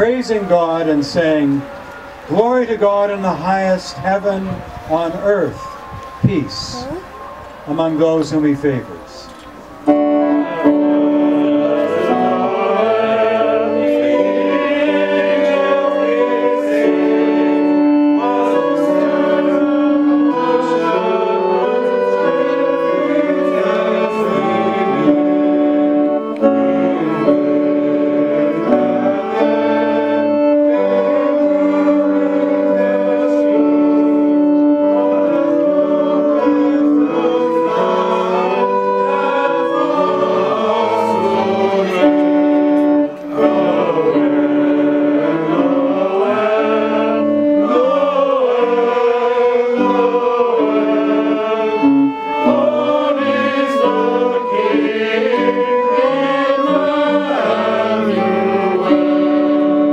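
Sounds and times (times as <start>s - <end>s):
electronic keyboard chords: 0.0s - 59.9s
group of people singing: 9.6s - 59.9s.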